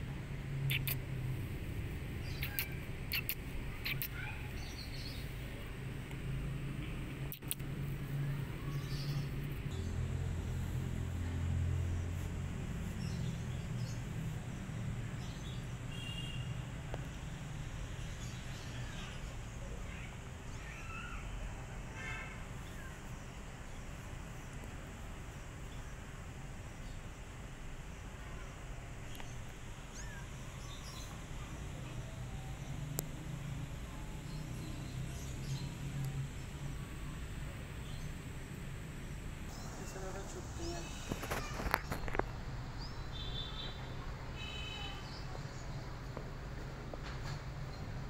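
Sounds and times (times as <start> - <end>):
birds chirping: 0.5 - 16.5, 28.0 - 46.2.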